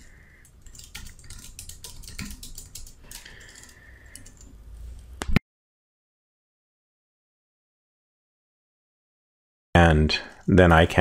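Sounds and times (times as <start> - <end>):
keyboard keys clicking: 0.6 - 4.5.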